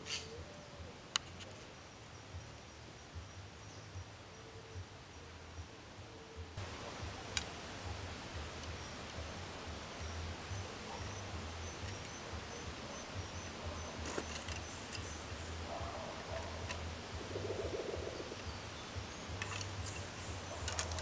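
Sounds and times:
insect chirping: 6.6 - 21.0
wooden poles clicking and knocking: 10.9 - 17.0, 19.2 - 21.0.

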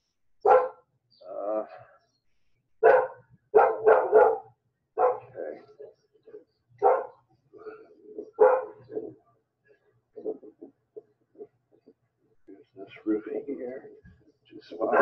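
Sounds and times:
dog barking: 0.4 - 0.9, 2.8 - 5.9, 6.8 - 9.2.

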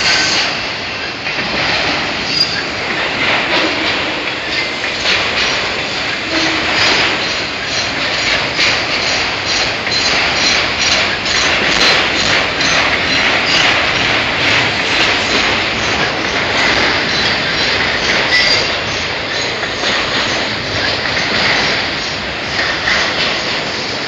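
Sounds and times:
train wheels clattering on rails: 0.0 - 24.0.

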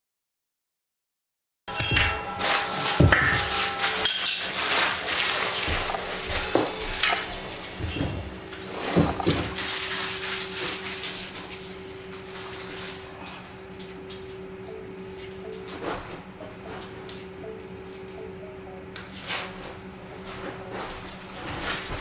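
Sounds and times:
steady low hum: 1.7 - 22.0.

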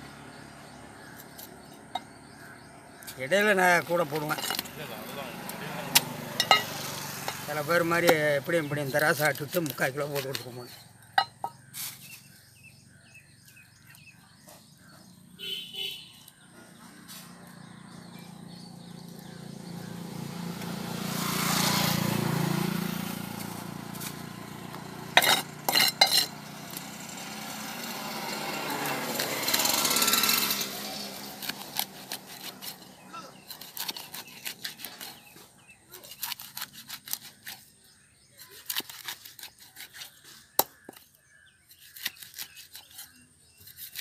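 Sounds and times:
vehicle motor passing: 3.8 - 8.9, 16.6 - 33.6
cleaver chopping fish on wood: 5.4 - 8.4, 38.6 - 41.0.

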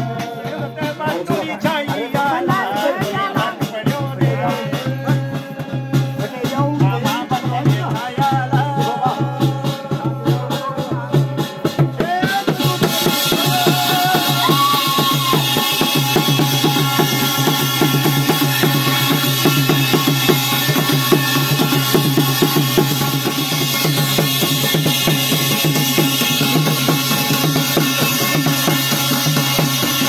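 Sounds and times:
person singing: 0.0 - 17.1
fast loud drumming: 0.0 - 30.0.

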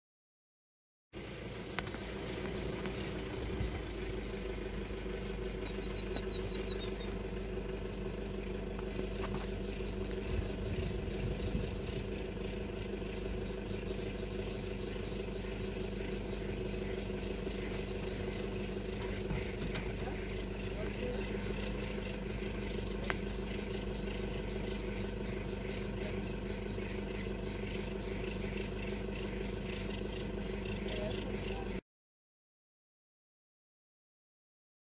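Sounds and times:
engine idling: 1.2 - 31.8
high chirps: 1.3 - 7.4.

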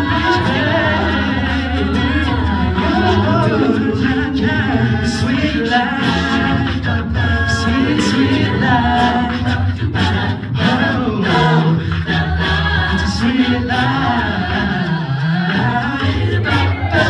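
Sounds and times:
male soloist singing: 0.0 - 9.8
backing voices singing: 0.0 - 17.0.

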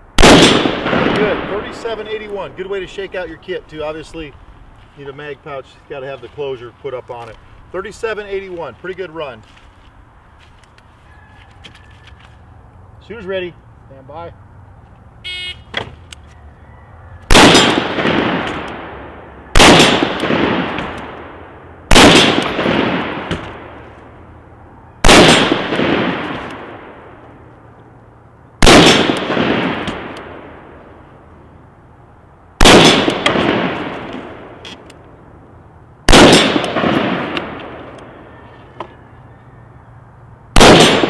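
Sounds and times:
rifle shots echoing: 0.2 - 3.2, 17.3 - 23.9, 25.0 - 27.2, 28.6 - 30.8, 32.6 - 34.6, 36.1 - 38.2, 40.5 - 41.0.

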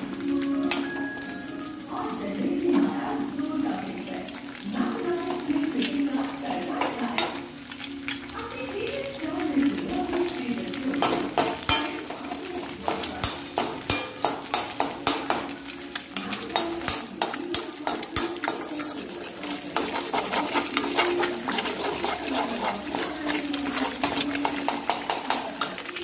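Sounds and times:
eggs sizzling in oil: 0.0 - 26.0
metal spatula scraping a pan: 6.5 - 7.6, 9.7 - 26.0.

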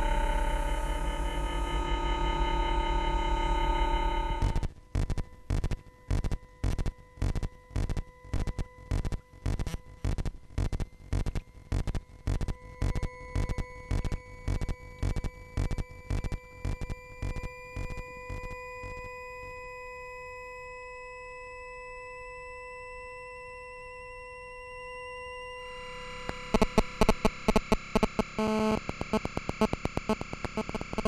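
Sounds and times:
thin tone rising in pitch: 0.0 - 4.6
steady electronic tones: 0.0 - 4.7, 25.4 - 31.0
buzzing electronic pulse: 0.0 - 19.0, 25.3 - 31.0.

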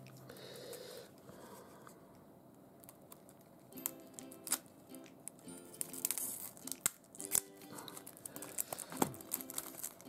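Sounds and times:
scissors cutting plastic: 2.8 - 5.2, 5.8 - 10.0
shrink-wrap crinkling and tearing: 4.2 - 4.6, 5.3 - 10.0.

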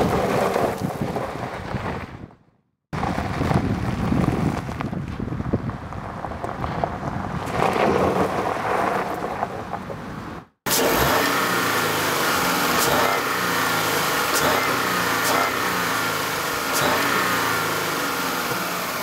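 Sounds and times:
tyres on gravel: 0.0 - 2.4, 3.0 - 19.0
wind on microphone: 3.0 - 9.2
car engine running: 10.7 - 19.0.

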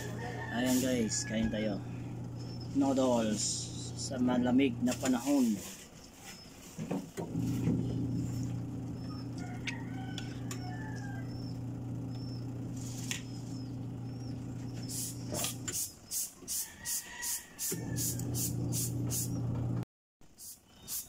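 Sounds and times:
steady low hum: 0.0 - 5.8, 7.2 - 15.8, 17.8 - 19.8
birds chirping: 0.0 - 16.2.

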